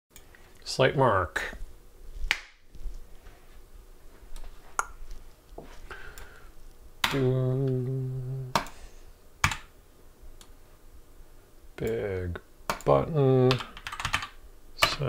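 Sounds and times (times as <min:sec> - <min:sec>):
low hum-like tone: 0:07.0 - 0:09.2.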